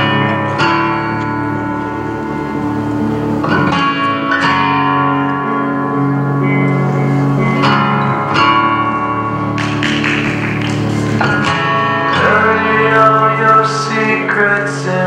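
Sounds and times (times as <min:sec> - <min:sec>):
guitar-led music: 0:00.0 - 0:15.0
person singing: 0:11.9 - 0:15.0.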